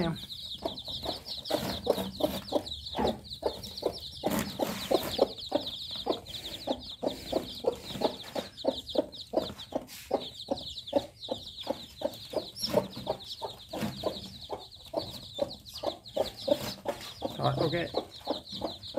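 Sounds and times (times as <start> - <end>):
chicks peeping: 0.0 - 18.9
hen clucking: 0.0 - 18.9.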